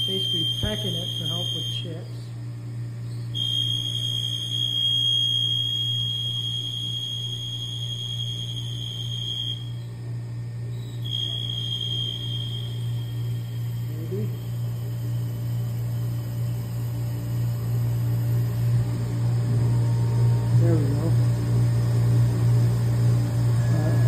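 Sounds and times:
low machine hum: 0:00.0 - 0:24.0
lathe tool squealing: 0:10.8 - 0:15.2.

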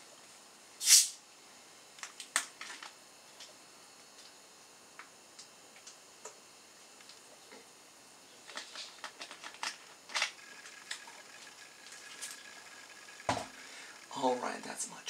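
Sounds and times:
clicks and clatter: 0:08.5 - 0:11.1.

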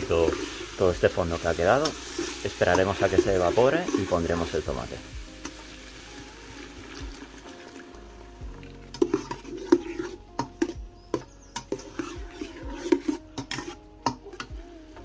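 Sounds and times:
metal skimmer scraping pot: 0:00.0 - 0:04.7, 0:08.6 - 0:14.5
vegetables sizzling: 0:00.0 - 0:15.0
metal knocking on enamel pot: 0:08.9 - 0:14.6.

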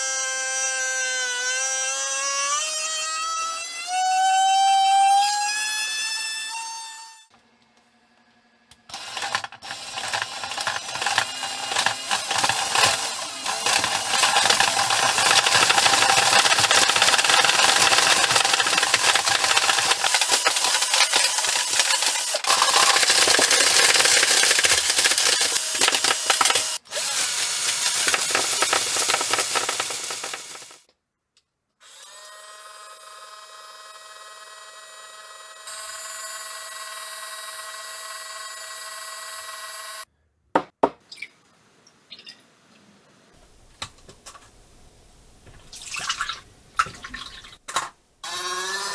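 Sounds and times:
toy motor rattling whir: 0:08.9 - 0:30.9.

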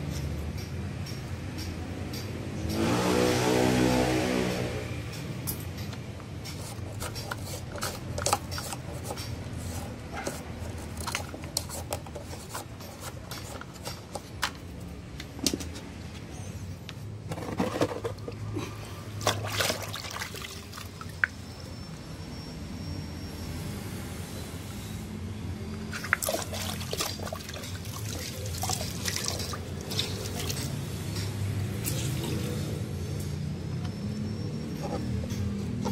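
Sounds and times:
hands working plastic parts: 0:05.8 - 0:15.9.

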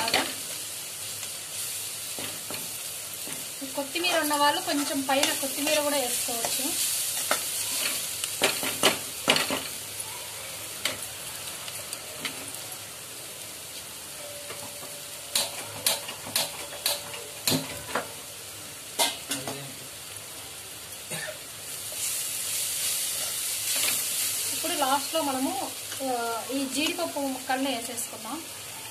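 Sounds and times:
onions sizzling in a pan: 0:00.0 - 0:28.9
spatula tapping a pan: 0:14.4 - 0:18.1.

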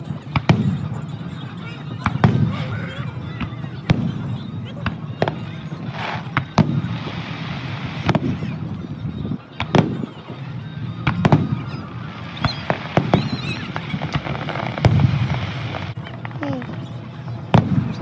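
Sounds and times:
fireworks bursting with bangs: 0:00.0 - 0:18.0.

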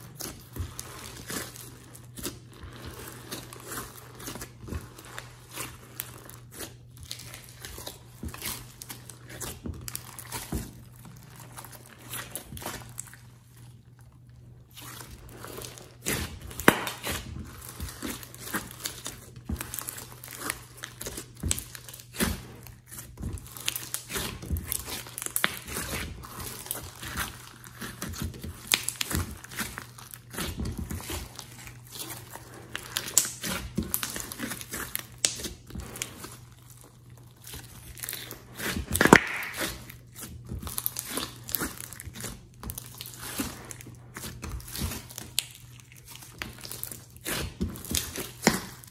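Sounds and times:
slime squelching and crackling: 0:00.0 - 0:48.9.

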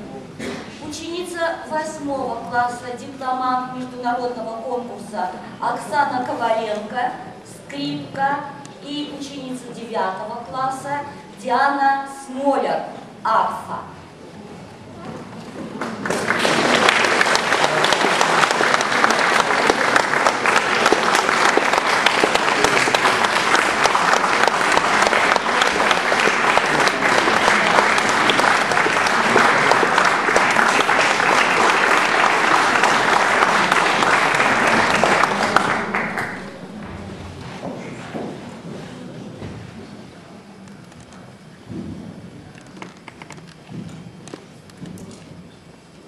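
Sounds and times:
audience applauding: 0:15.8 - 0:36.9.

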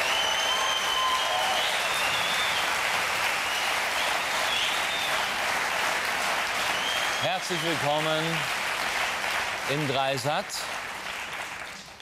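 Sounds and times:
high whistles: 0:00.0 - 0:02.7, 0:03.4 - 0:05.3, 0:06.7 - 0:07.6
audience applauding: 0:00.0 - 0:12.0.

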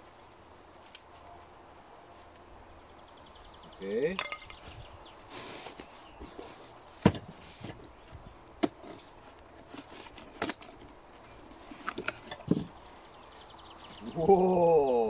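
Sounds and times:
cardboard rustling: 0:05.2 - 0:14.0
cardboard knocks and scrapes: 0:05.4 - 0:13.1.

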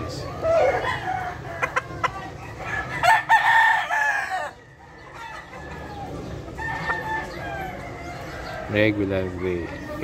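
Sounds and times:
rooster crowing: 0:02.6 - 0:04.9.

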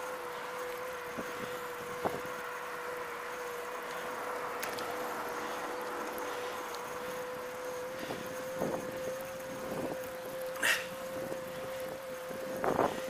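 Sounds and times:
electric motor whining: 0:00.0 - 0:13.0
tyre and wind noise: 0:01.0 - 0:02.5, 0:07.2 - 0:13.0.

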